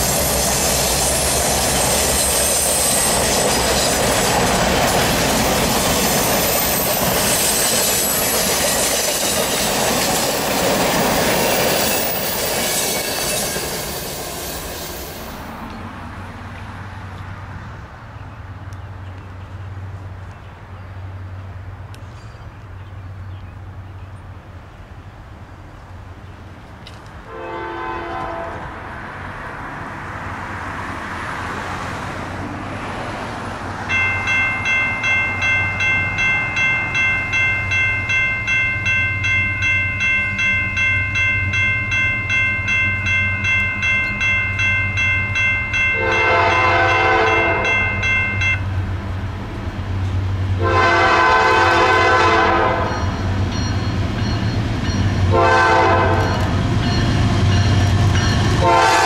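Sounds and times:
locomotive engine hum: 0.0 - 59.0
locomotive air horn blasts: 27.3 - 28.8, 46.0 - 47.8, 50.6 - 53.1, 55.3 - 56.5, 58.6 - 59.0
bell ringing steadily: 33.9 - 48.7, 52.8 - 55.3, 56.2 - 58.7.

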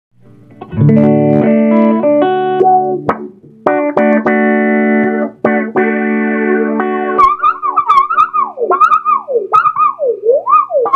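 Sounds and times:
electric guitar chords and notes: 0.2 - 10.9.

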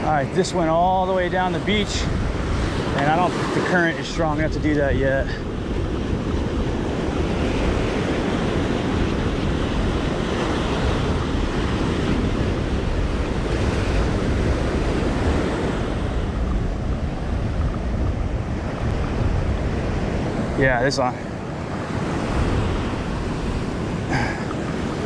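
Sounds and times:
ocean surf breaking: 0.0 - 25.0
wind buffeting microphone: 0.0 - 25.0.

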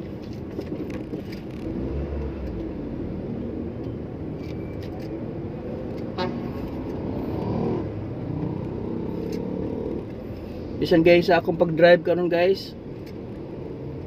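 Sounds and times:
car engine and road noise: 0.0 - 14.0
car horn toot: 6.2 - 6.6.

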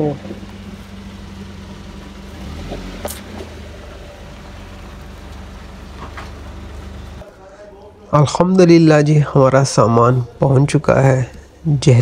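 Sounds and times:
vehicle engine idling: 0.0 - 8.4.

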